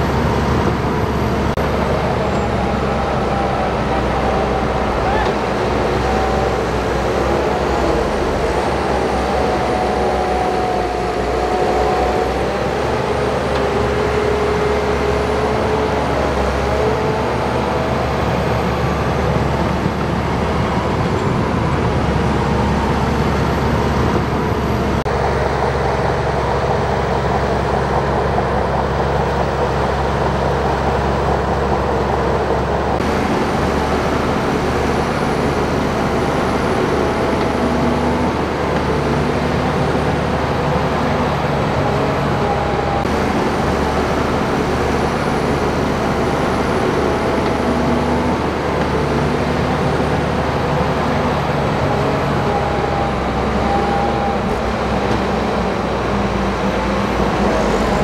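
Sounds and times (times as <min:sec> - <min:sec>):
bulldozer diesel engines droning: 0:00.0 - 0:58.0.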